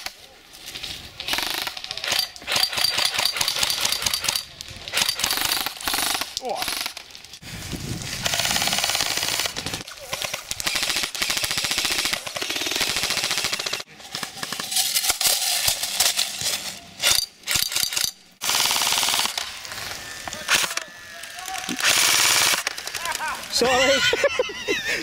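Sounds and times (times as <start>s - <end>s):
airsoft guns firing bursts: 1.3s - 7.0s, 8.3s - 14.7s, 17.5s - 19.6s, 21.8s - 23.3s.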